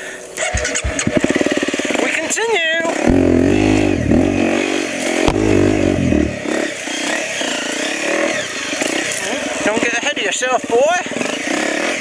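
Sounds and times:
dirt bike engine revving: 0.0 - 12.0
sharp knock: 0.4 - 1.4.

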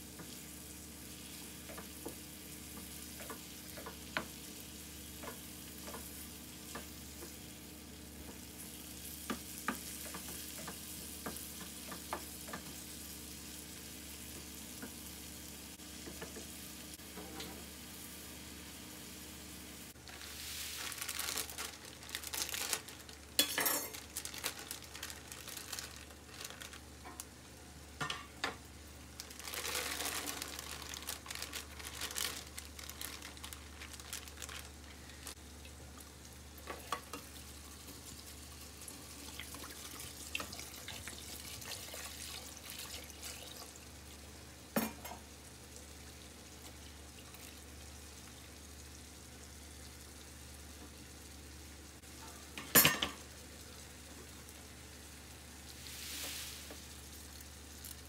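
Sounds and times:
frozen beans rustling into a pot: 20.0 - 27.3, 29.0 - 35.4, 55.7 - 58.0
tap water running into a pot: 35.6 - 43.9.

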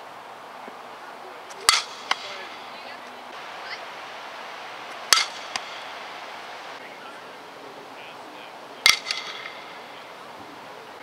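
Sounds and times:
bat hitting softball crack: 1.5 - 6.8, 8.8 - 10.1.

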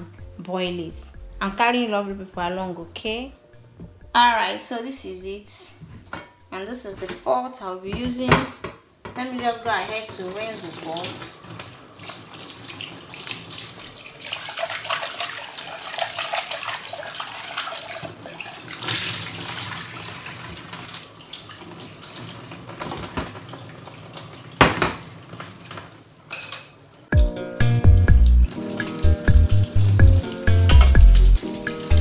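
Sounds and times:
tap water splashing into a pot: 10.0 - 26.0.

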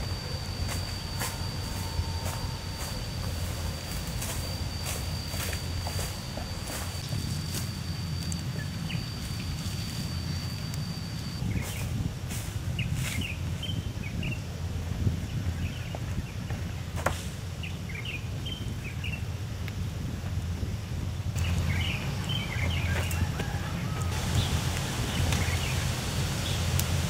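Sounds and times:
birds chirping: 0.0 - 12.0, 21.2 - 27.0
low steady rumble: 0.0 - 27.0
thin high whine: 0.0 - 27.0.

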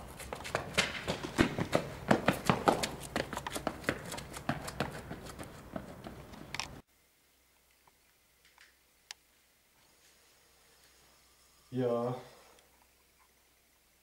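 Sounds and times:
footsteps on pavement: 0.0 - 6.8.

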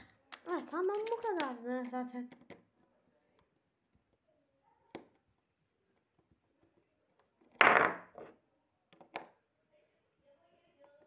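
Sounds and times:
plastic toy clattering: 0.3 - 2.6.

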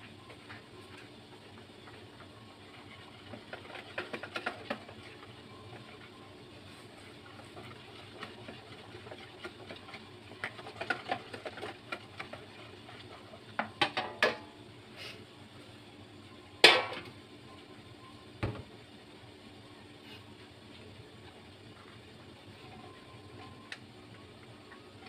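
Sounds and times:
whisk stirring batter in bowl: 0.3 - 13.8.

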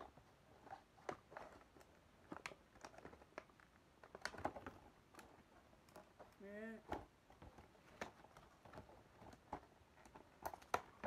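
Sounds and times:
hands handling cardboard box: 0.0 - 11.0.

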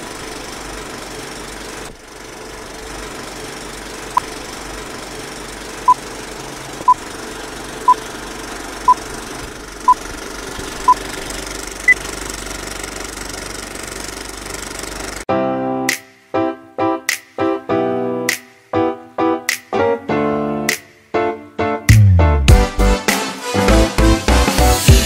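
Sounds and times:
film projector clatter: 0.0 - 15.3.

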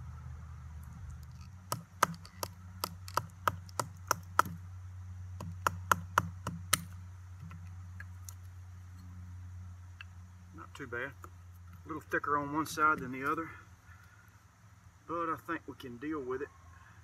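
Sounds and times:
wood striking knife spine: 1.1 - 4.6.

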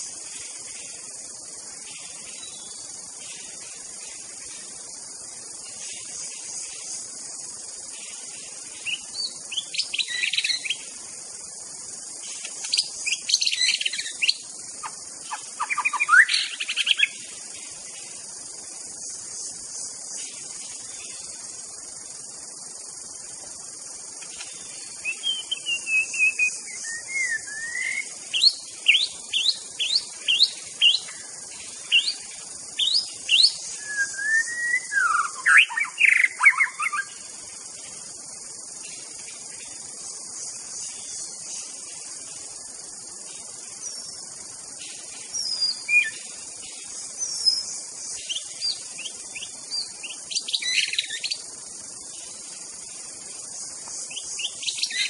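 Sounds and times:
steady high-pitched hiss: 0.0 - 55.0
songbird whistling: 25.0 - 31.2, 32.8 - 37.0.

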